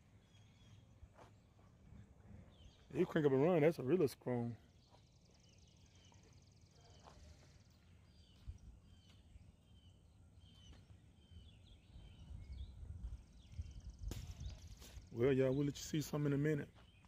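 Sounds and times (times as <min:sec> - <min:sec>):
bird chirps: 0:00.0 - 0:17.0
low wind rumble: 0:08.2 - 0:15.2.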